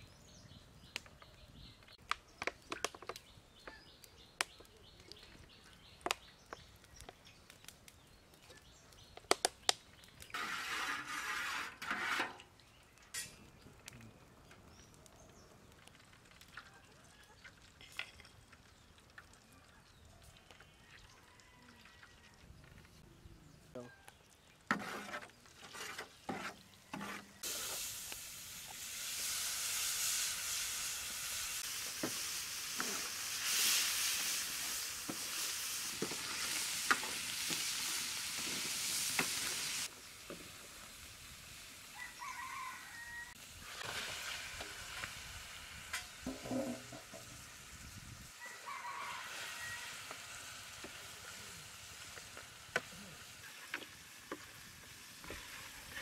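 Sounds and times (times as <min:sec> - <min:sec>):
metal spatula scraping tray: 0:10.3 - 0:12.4, 0:24.7 - 0:27.4
meat sizzling in hot oil: 0:27.0 - 0:56.0.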